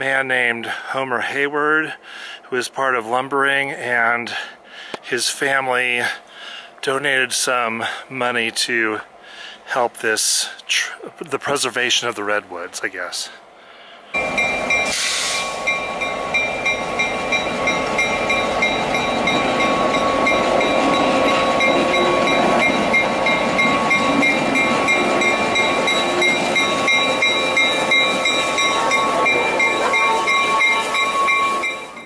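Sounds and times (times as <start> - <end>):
diesel locomotive engine: 14.1 - 32.0
locomotive bell ringing: 14.2 - 32.0.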